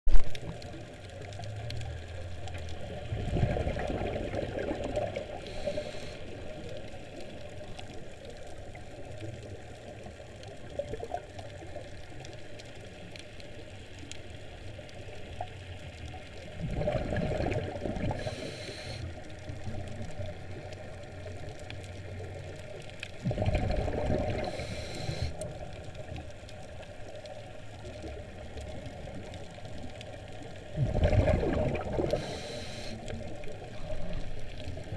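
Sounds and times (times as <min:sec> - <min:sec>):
scuba regulator exhaust bubbles: 0:00.1 - 0:07.9, 0:16.4 - 0:21.5, 0:22.2 - 0:26.2, 0:27.6 - 0:34.9
underwater wash of water: 0:00.1 - 0:34.9.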